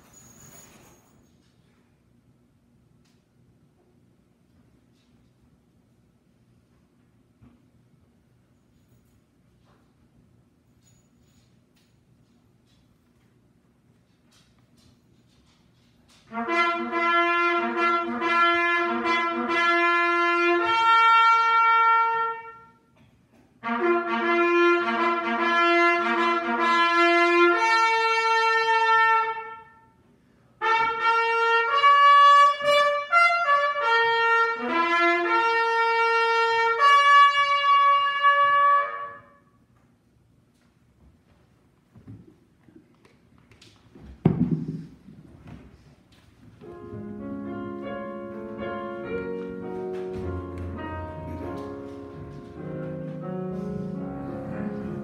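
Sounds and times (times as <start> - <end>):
solo trumpet playing: 16.3 - 22.9, 23.6 - 30.0, 30.6 - 39.6, 46.6 - 55.0.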